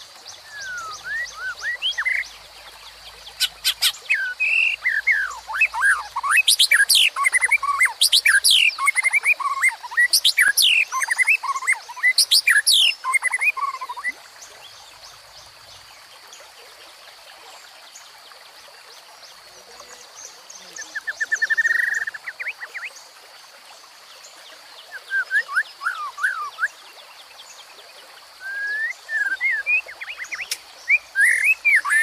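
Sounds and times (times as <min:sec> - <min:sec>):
forest stream rushing: 0:00.0 - 0:32.0
bird singing whistled phrases: 0:00.4 - 0:02.2, 0:24.9 - 0:26.8, 0:28.4 - 0:32.0.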